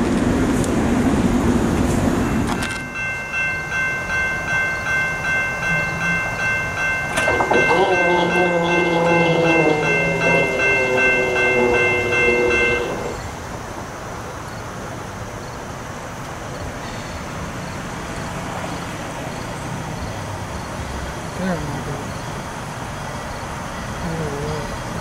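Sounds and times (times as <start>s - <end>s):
low rumble of distant train: 0.0s - 25.0s
rapidly ringing bell: 2.6s - 13.2s
train horn: 7.1s - 13.4s.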